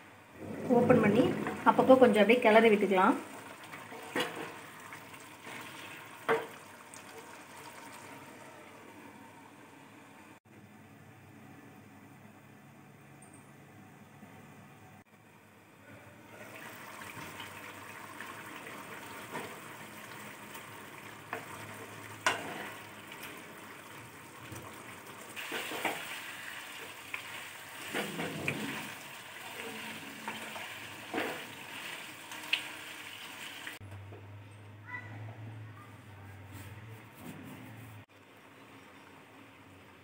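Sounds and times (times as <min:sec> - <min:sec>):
curry sizzling and bubbling in pan: 0:01.1 - 0:08.6, 0:16.4 - 0:33.8.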